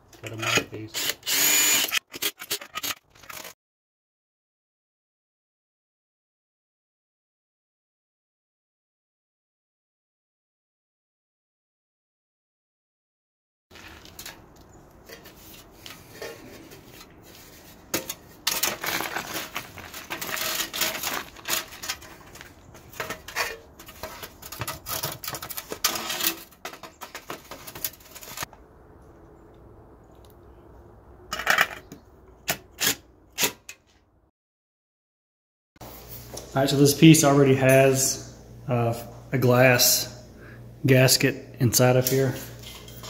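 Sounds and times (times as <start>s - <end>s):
impact driver driving screws: 1.0s - 3.5s
sheet metal scraping against brick: 15.0s - 28.5s.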